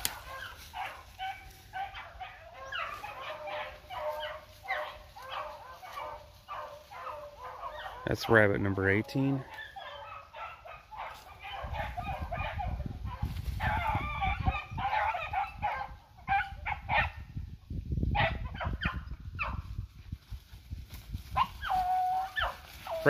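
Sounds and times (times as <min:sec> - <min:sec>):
dogs baying: 0:00.0 - 0:17.2, 0:21.3 - 0:23.0
wind rumbling on microphone: 0:10.4 - 0:23.0.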